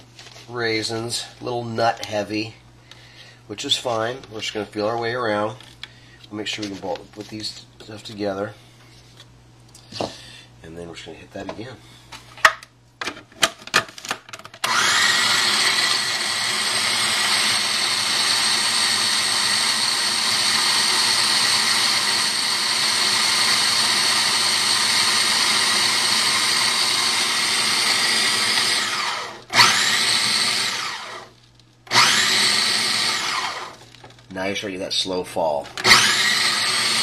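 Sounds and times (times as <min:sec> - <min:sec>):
food processor clicks: 0:14.6 - 0:31.0, 0:31.9 - 0:33.8, 0:35.8 - 0:37.0
food processor motor whining: 0:14.6 - 0:33.9, 0:35.8 - 0:37.0.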